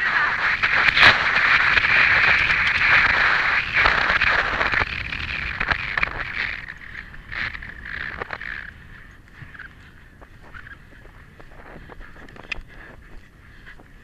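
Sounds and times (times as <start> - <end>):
rushing air: 0.0 - 9.6.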